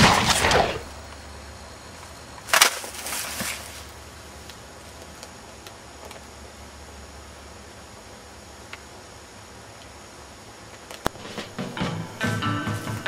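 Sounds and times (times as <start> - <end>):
sharp crack: 0.0 - 1.2, 2.4 - 3.7
crunching in dry twigs and leaves: 0.0 - 6.4
faint low hum: 0.0 - 13.0
small ticks: 8.6 - 8.9.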